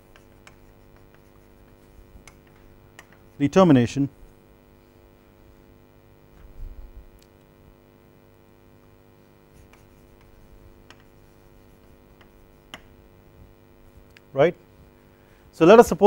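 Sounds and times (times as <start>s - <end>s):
chalk tapping and scratching: 0.0s - 3.5s, 9.5s - 13.0s
faint steady hum: 0.0s - 16.0s.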